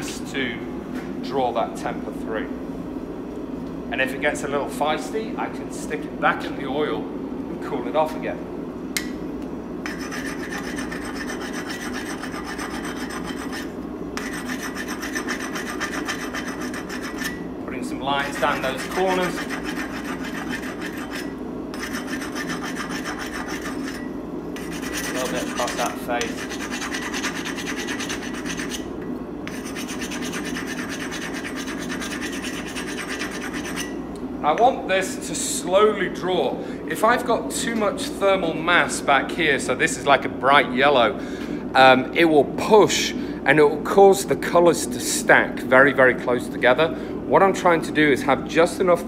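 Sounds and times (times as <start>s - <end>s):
steady low hum: 0.0s - 49.0s
grinding stone scraping steel: 9.9s - 17.4s, 18.2s - 28.9s, 29.5s - 34.0s
abrasive scraping steel: 18.1s - 28.9s.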